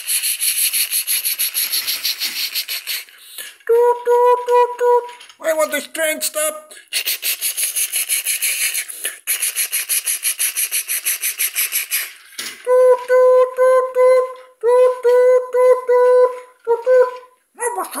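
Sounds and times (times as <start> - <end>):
person singing short doot notes: 3.6 - 5.2, 12.6 - 18.0.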